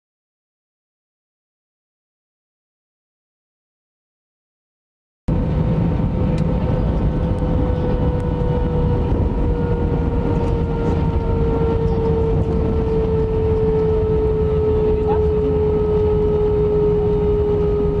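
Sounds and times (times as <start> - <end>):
jet engine low rumble: 5.3 - 18.0
jet engine whine: 5.3 - 18.0.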